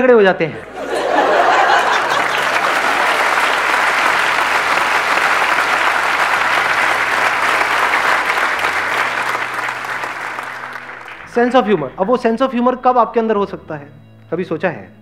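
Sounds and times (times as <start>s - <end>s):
audience applauding: 0.7s - 12.0s.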